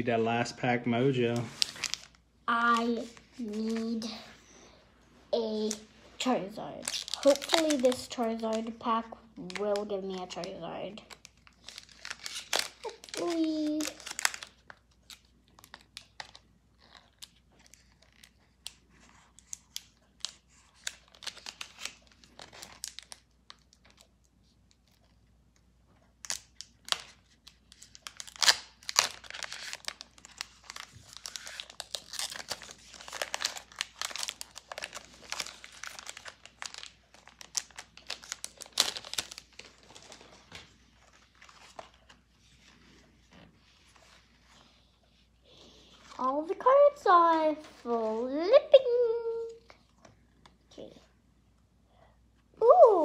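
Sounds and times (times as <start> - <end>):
foil wrapper crinkling and tearing: 1.1 - 2.2, 5.6 - 25.2, 26.2 - 42.2.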